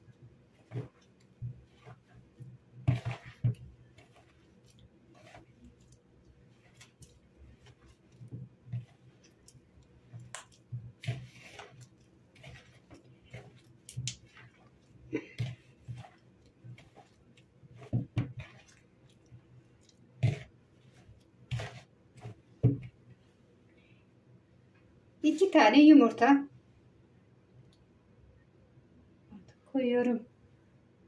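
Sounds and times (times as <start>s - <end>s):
hand squishing mixture in bowl: 0.0s - 23.7s.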